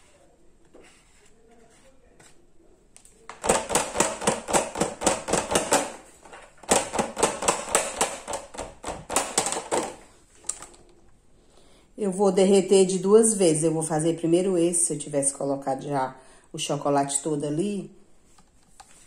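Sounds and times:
plastic mold knocking on glass dish: 0:03.3 - 0:06.0, 0:06.6 - 0:10.0.

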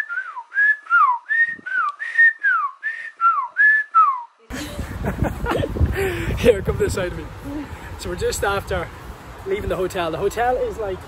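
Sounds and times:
person whistling: 0:00.0 - 0:04.4.

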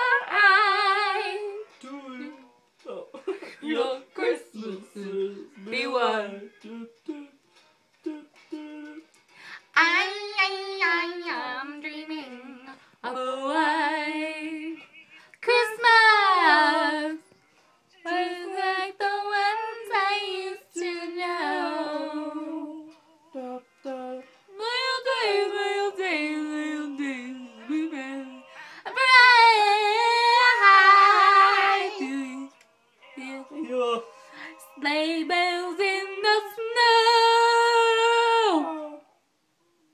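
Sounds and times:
woman singing unaccompanied: 0:00.0 - 0:07.4, 0:08.0 - 0:17.4, 0:18.0 - 0:39.1.

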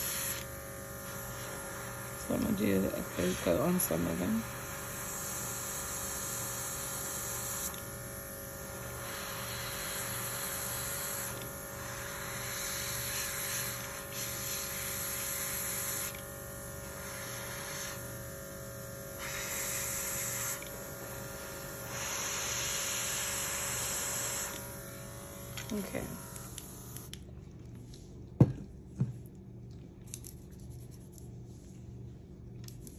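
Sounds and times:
air compressor humming: 0:00.0 - 0:27.2
airbrush spraying hissing air: 0:08.8 - 0:16.1, 0:16.9 - 0:18.0, 0:21.8 - 0:24.6.

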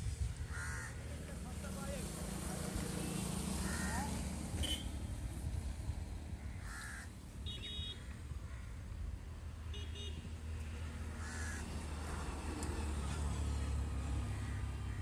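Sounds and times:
crows cawing: 0:00.5 - 0:01.2, 0:03.6 - 0:04.1, 0:06.4 - 0:07.2, 0:08.0 - 0:09.0, 0:11.1 - 0:11.7, 0:14.3 - 0:14.8.

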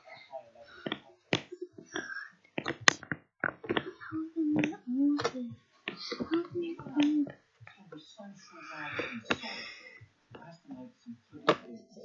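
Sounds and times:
sharp taps and clicks: 0:00.8 - 0:07.8.

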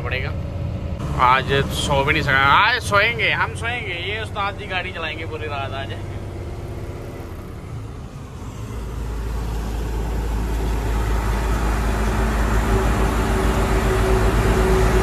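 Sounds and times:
truck engine and road noise: 0:00.0 - 0:15.0.

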